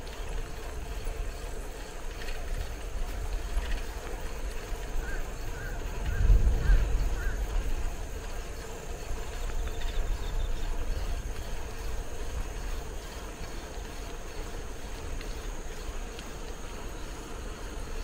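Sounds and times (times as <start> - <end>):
bicycle road noise: 0.0 - 18.0
faint rattling ticks: 0.0 - 18.0.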